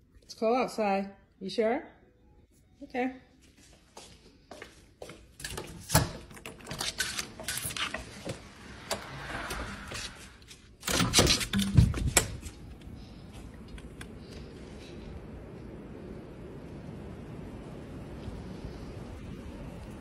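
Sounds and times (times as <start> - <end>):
door clattering with thumps: 10.8 - 12.5
wind hissing outdoors: 11.7 - 20.0.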